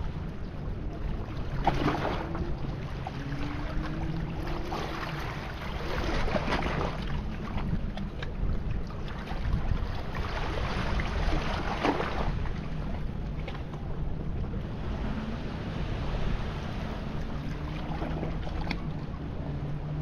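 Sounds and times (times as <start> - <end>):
wind rumble on microphone: 0.0 - 20.0
waves splashing over rocks: 1.3 - 13.9.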